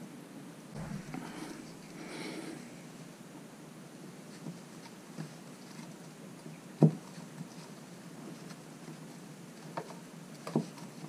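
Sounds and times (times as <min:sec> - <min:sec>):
faint rubbing: 0:00.8 - 0:03.1.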